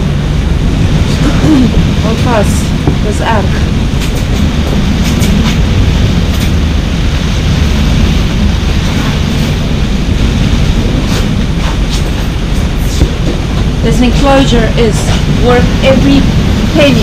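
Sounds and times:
sea rushing past hulls: 0.0s - 17.0s
strong wind against vinyl enclosure: 0.0s - 17.0s.

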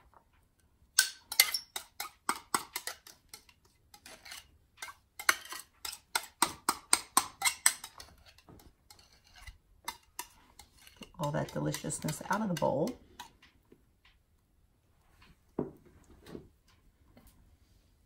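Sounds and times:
spatula scraping glass bowl: 1.3s - 6.4s, 7.3s - 13.3s.

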